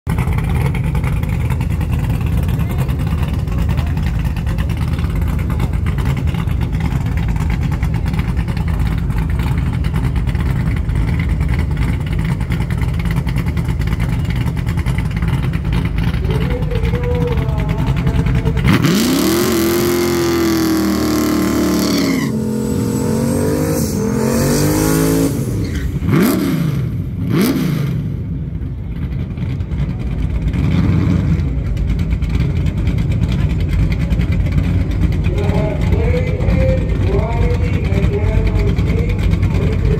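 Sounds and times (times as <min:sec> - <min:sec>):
engine revving: 0:00.1 - 0:28.3, 0:30.4 - 0:39.9
race car engines idling: 0:00.1 - 0:39.9.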